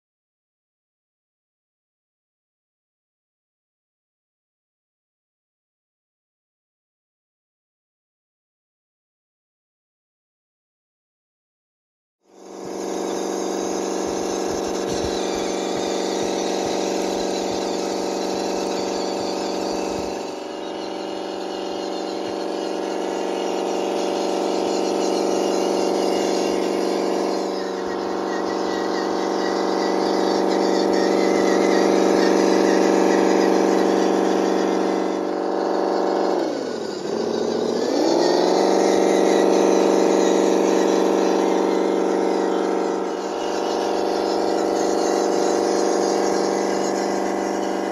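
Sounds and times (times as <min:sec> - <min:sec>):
simulated engine drone from speaker: 0:12.6 - 0:47.9.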